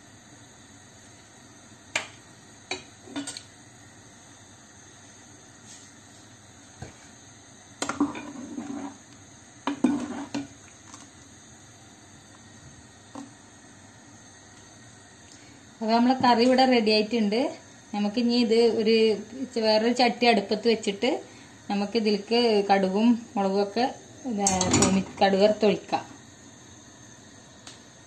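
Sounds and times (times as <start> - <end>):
ladle scraping a saucepan: 7.9 - 9.0, 9.7 - 10.4.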